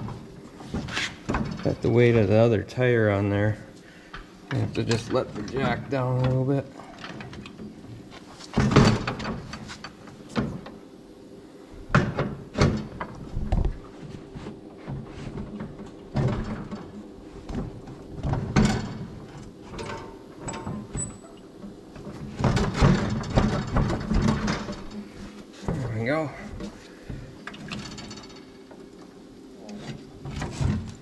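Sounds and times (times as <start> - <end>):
metal clunks and knocks: 8.5 - 9.7, 11.9 - 13.2, 14.8 - 25.0.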